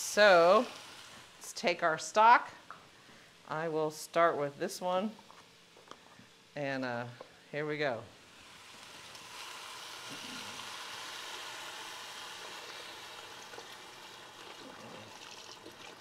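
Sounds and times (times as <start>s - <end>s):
liquid pouring into a pot: 9.1s - 16.0s.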